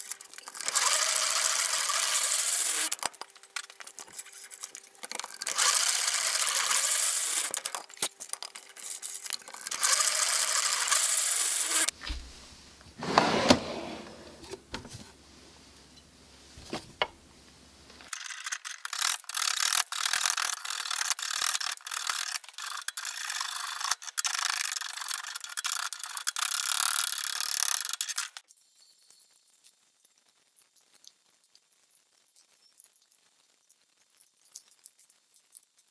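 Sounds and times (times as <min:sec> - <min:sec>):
drill press boring into wood: 0:00.6 - 0:03.0, 0:05.4 - 0:07.7, 0:09.6 - 0:12.0
hand tool scraping wood: 0:13.0 - 0:14.6.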